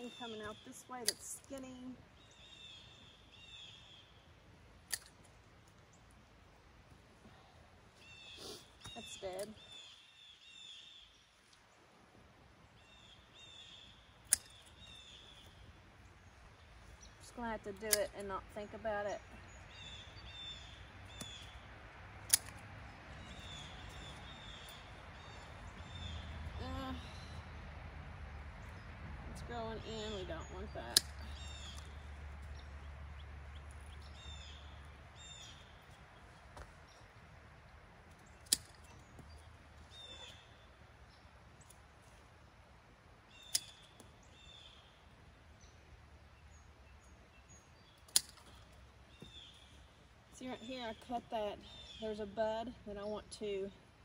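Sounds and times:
birds chirping: 0.0 - 54.0
pruners snipping branch: 0.1 - 1.7, 4.8 - 5.3, 14.2 - 14.9, 17.4 - 19.5, 22.2 - 22.7, 29.6 - 32.7, 38.1 - 40.4, 43.4 - 44.2, 48.0 - 49.4
faint pruner click: 0.4 - 1.7, 14.3 - 14.7, 22.3 - 22.6.

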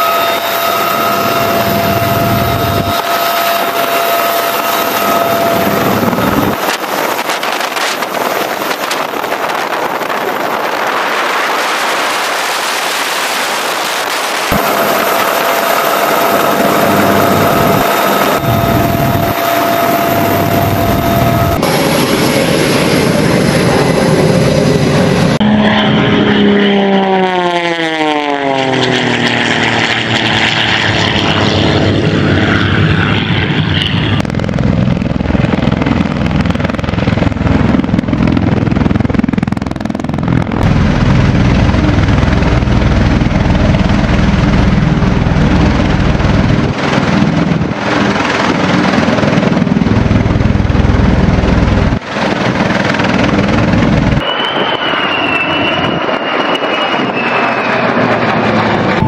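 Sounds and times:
heavy rotor noise: 0.0 - 59.0
jet whine passing: 0.0 - 59.0
low rumble: 14.5 - 54.3.

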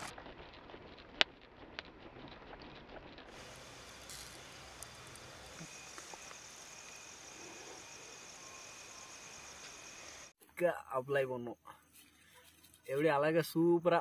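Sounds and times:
night insects trilling: 3.3 - 11.4.

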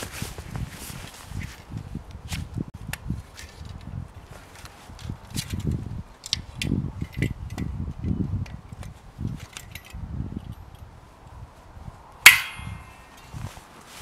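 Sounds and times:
metal saw clanging: 12.3 - 13.2.

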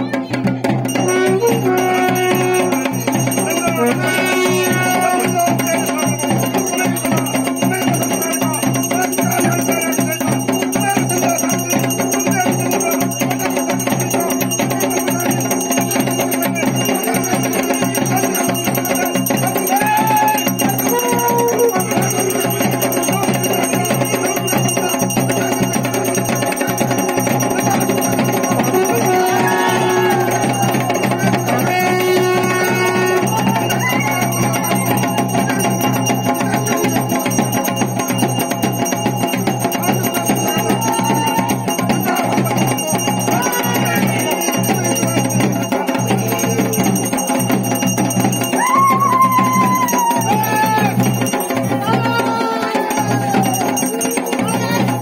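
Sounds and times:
dhol and damau drumming: 0.0 - 55.0
bells ringing: 0.4 - 55.0.

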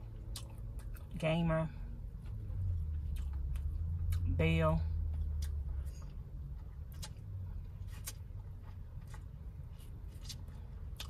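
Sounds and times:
low steady hum: 0.0 - 11.0
mouth clicks and smacks eating: 0.1 - 1.2, 2.9 - 4.3, 5.1 - 9.3.

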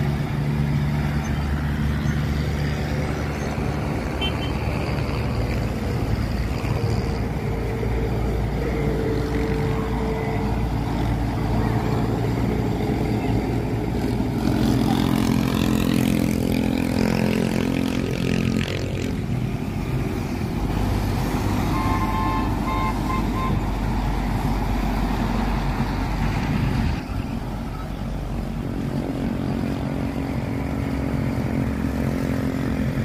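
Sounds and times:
truck diesel engines passing: 0.0 - 33.0
tyres on road: 0.0 - 33.0
vehicle horn toots: 4.2 - 4.6, 21.7 - 23.6.

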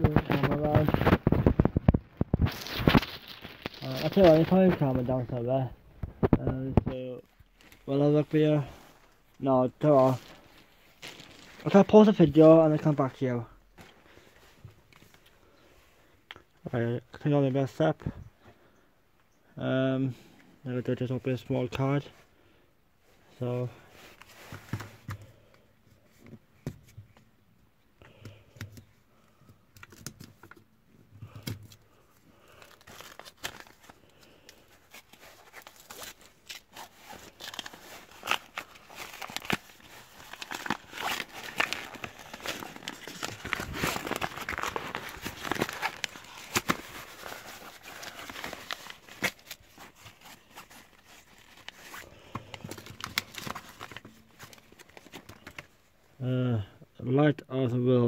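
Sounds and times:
paper rustles and clicks: 0.0 - 5.1
paper envelope tearing and crumpling: 0.0 - 5.2, 10.0 - 11.7, 31.3 - 55.7.

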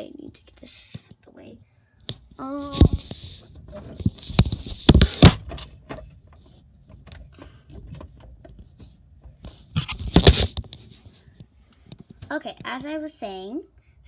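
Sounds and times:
light clicks and rustles: 2.0 - 13.0.

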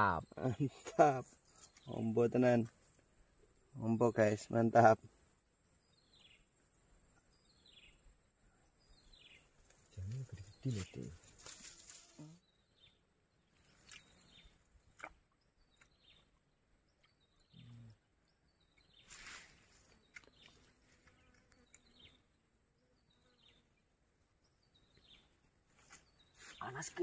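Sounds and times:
faint chirps: 3.4 - 23.9.

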